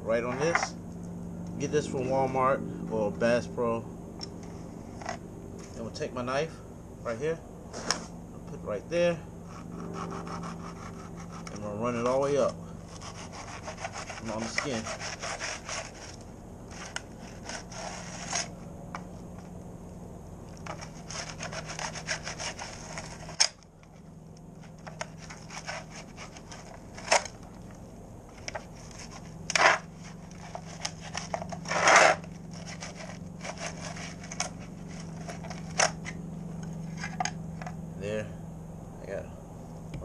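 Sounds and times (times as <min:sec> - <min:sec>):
steady low hum: 0:00.0 - 0:40.0
knife scraping fish skin: 0:09.5 - 0:11.6, 0:12.9 - 0:18.6, 0:20.6 - 0:23.5, 0:24.9 - 0:27.2, 0:28.5 - 0:35.8.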